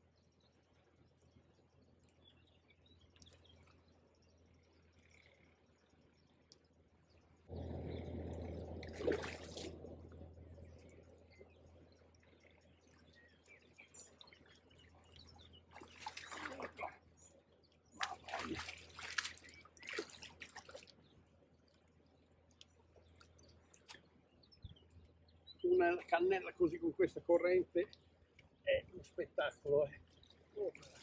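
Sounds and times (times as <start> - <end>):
fish splashing in water: 8.3 - 10.0, 15.2 - 17.0, 18.0 - 21.0.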